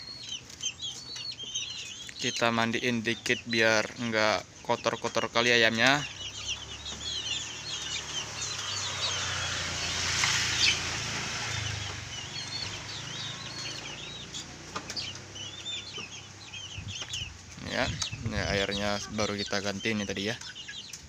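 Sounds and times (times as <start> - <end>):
chicks peeping: 0.0 - 21.0.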